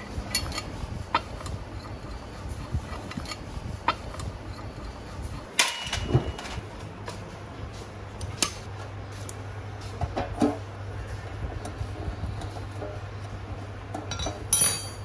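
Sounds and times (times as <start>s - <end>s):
metal parts and tools clinking: 0.0s - 6.6s, 14.0s - 15.0s
metallic clink with ring: 14.1s - 15.0s.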